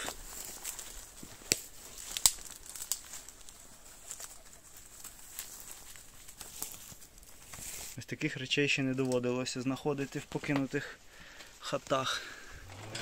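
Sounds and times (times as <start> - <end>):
footsteps cracking dry debris: 0.0 - 8.0.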